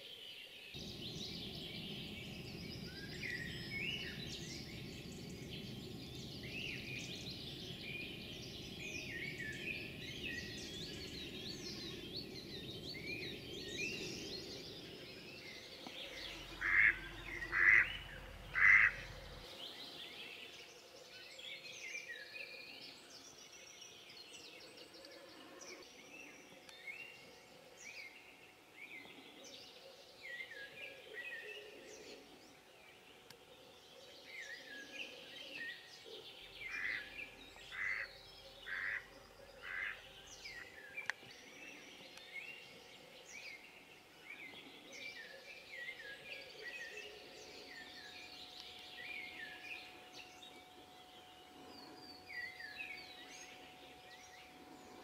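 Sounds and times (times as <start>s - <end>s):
songbirds chirping: 0.0s - 55.0s
duck quacking: 18.6s - 19.1s.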